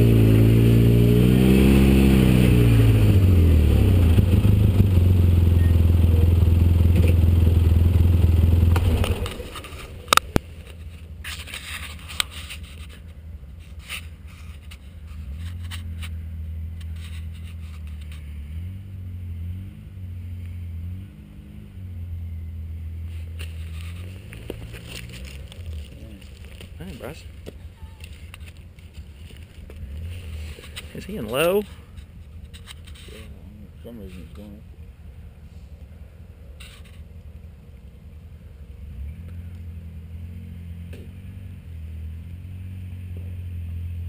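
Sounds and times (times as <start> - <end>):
distant vehicle engine crawling: 0.0 - 44.0
off-road vehicle engine running: 0.0 - 44.0.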